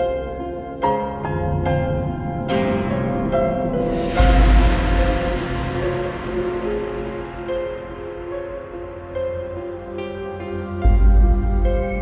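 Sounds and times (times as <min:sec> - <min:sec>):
film music held notes: 0:00.0 - 0:12.0
deep low hit: 0:01.4 - 0:09.3
hissing swell: 0:03.7 - 0:09.4.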